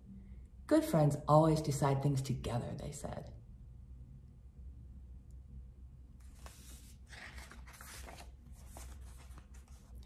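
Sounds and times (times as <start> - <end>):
low steady hum: 0.0 - 10.0
book pages rustling: 6.2 - 10.0.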